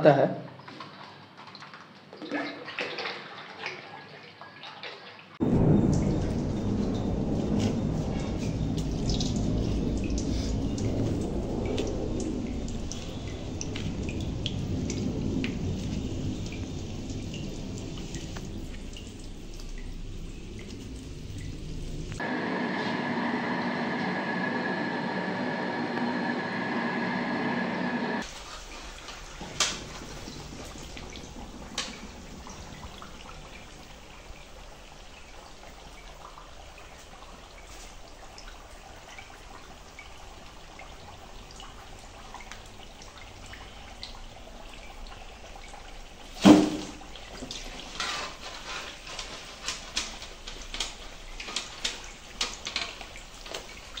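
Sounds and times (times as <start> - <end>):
food deep-frying in hot oil: 5.4 - 22.4, 28.2 - 54.0.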